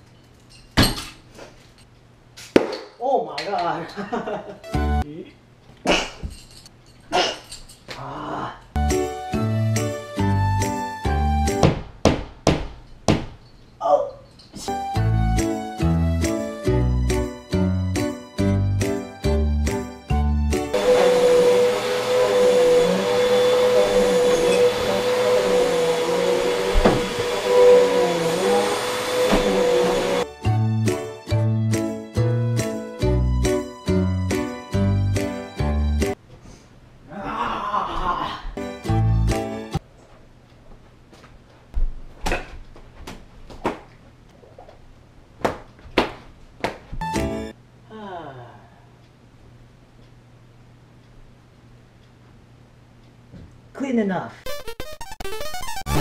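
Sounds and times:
vacuum cleaner running: 20.7s - 30.3s.

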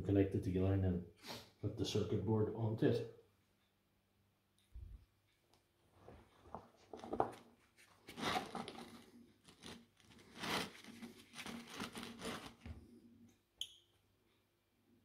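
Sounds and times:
gloved hands handling cables: 5.5s - 13.0s.

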